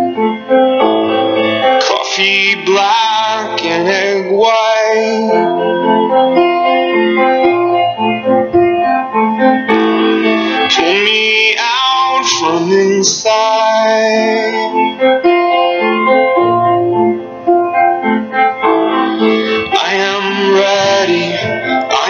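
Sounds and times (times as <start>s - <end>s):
piano-led music: 0.0s - 22.0s
person singing: 1.6s - 6.6s, 9.7s - 15.3s, 18.8s - 22.0s.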